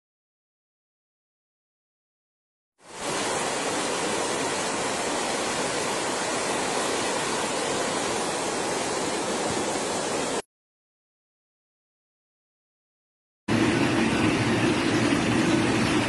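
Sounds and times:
waterfall rushing: 2.8s - 10.4s, 13.5s - 16.0s.

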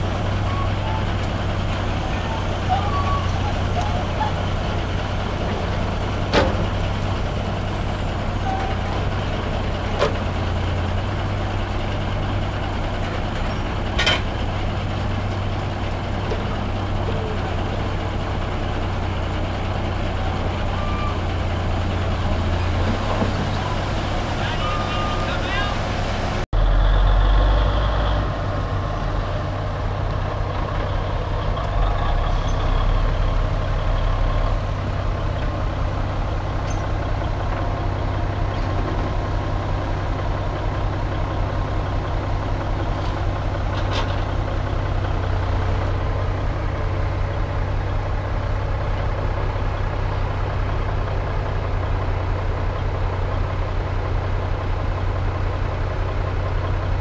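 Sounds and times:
heavy diesel engines running: 0.0s - 57.0s.

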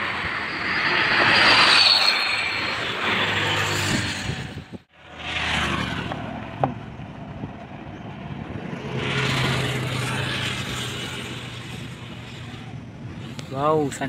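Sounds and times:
road vehicles passing: 0.0s - 14.0s
low engine hum: 3.9s - 14.0s.

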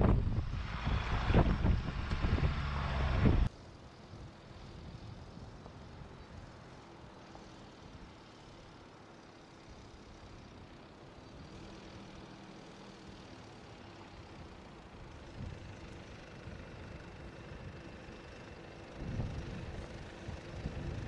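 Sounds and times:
wind on microphone: 0.0s - 3.5s, 19.0s - 21.0s
diesel engine and tyres: 0.0s - 21.0s.

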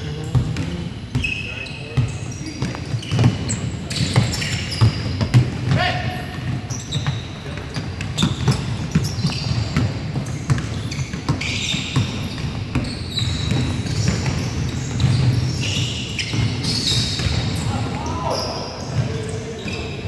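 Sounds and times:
sneaker squeaks: 0.0s - 20.0s
basketball bouncing on hardwood: 4.1s - 5.8s.

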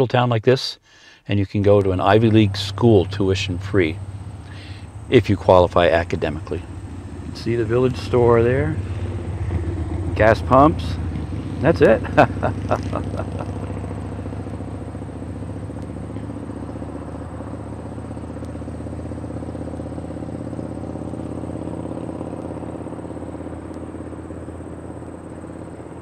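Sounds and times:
low motor hum: 1.6s - 26.0s
faint ticks: 15.7s - 16.0s, 18.4s - 18.7s.

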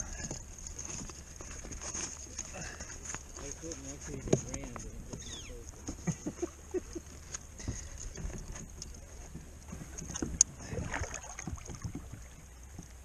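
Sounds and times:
gear knocking and rustling: 0.0s - 6.4s, 7.2s - 10.5s
water lapping against kayak hull: 0.0s - 13.0s.

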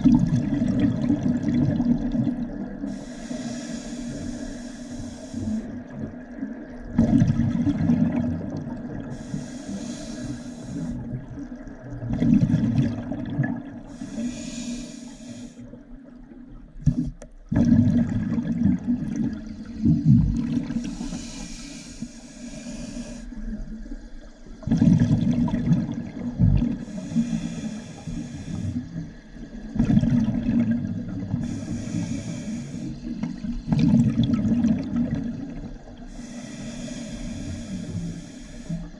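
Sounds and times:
hissing regulator inhale: 2.9s - 5.7s, 9.0s - 11.0s, 13.9s - 15.7s, 20.7s - 23.4s, 26.8s - 29.3s, 31.4s - 33.7s, 36.0s - 38.9s
gurgling exhaust bubbles: 17.5s - 20.9s, 24.6s - 27.0s, 33.1s - 35.8s.

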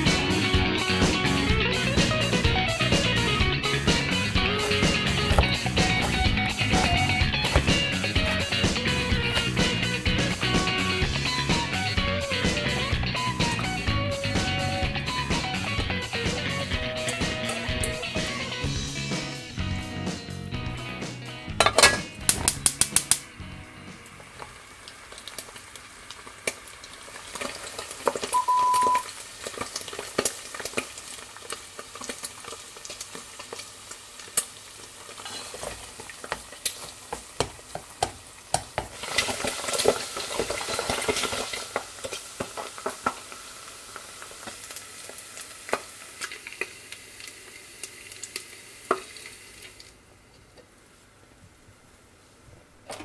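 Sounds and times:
fat sizzling and crackling: 0.0s - 50.0s
short steady beep: 28.4s - 29.0s.

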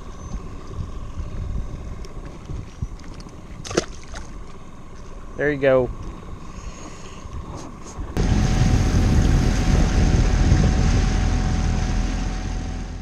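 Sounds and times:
wind: 0.0s - 13.0s
outboard motor running: 8.0s - 13.0s.

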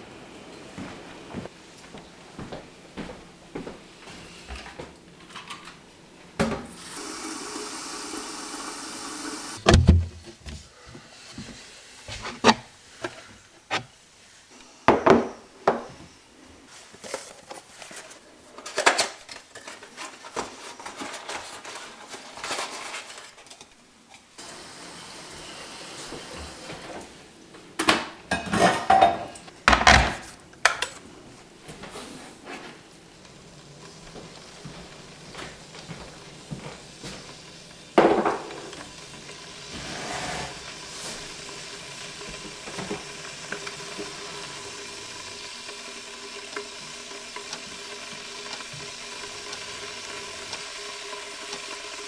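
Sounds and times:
mugs and kettle knocking and clinking: 38.0s - 38.7s.

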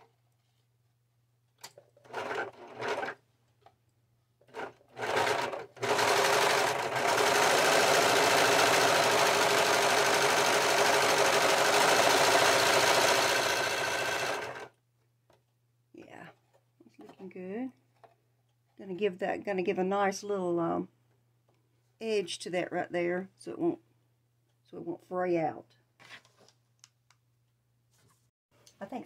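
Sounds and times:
serger stitching fabric: 2.0s - 3.2s, 4.4s - 14.7s.

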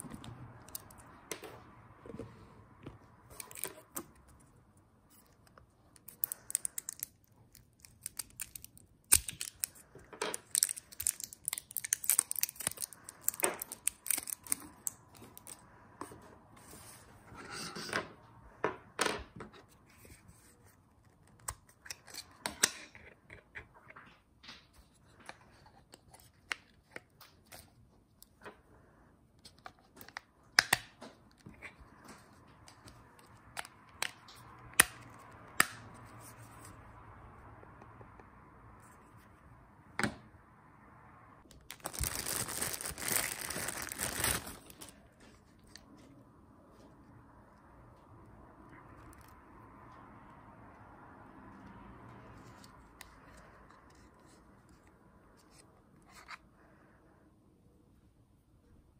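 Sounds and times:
rustling tearing bursts: 41.7s - 44.9s.

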